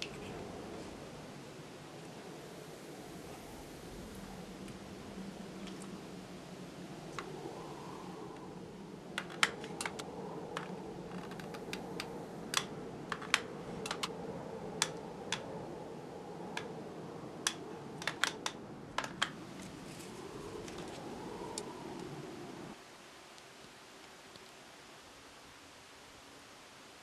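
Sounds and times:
steady low hum: 0.0s - 22.8s
wooden sticks clicking and tapping: 9.2s - 14.1s, 14.8s - 15.5s, 17.4s - 19.8s.

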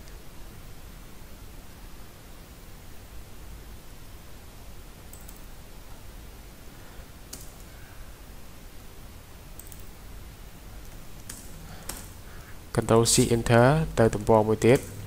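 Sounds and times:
recording hiss: 0.0s - 15.0s
computer mouse clicks: 5.1s - 5.5s, 7.3s - 7.7s, 9.6s - 10.0s, 10.8s - 12.2s, 14.2s - 15.0s.

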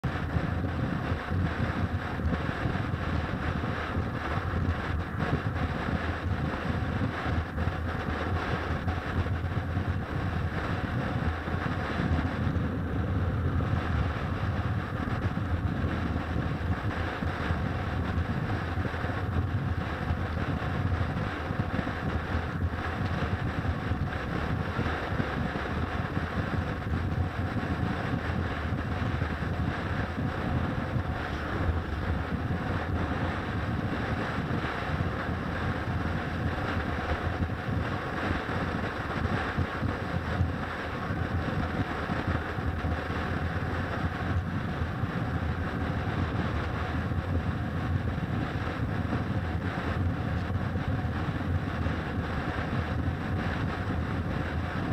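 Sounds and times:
motorcycle engine rumble: 0.0s - 54.9s
wind noise on microphone: 0.0s - 54.9s.

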